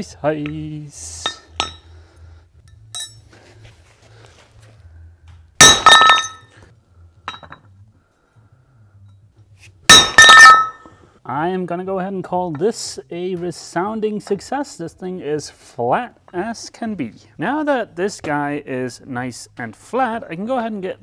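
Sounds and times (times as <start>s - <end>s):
sharp metallic clanks: 1.2s - 1.9s, 2.9s - 3.3s, 5.6s - 6.5s, 9.9s - 11.0s.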